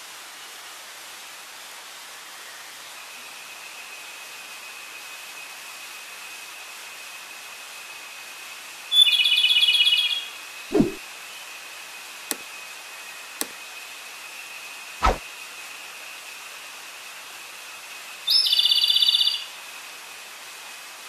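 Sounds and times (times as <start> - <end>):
short low thud: 10.7 - 11.0.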